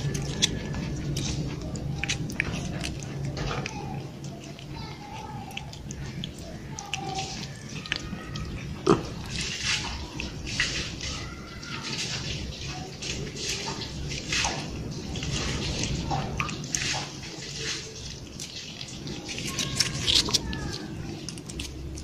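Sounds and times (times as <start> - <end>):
cats licking with wet smacks: 0.0 - 22.0.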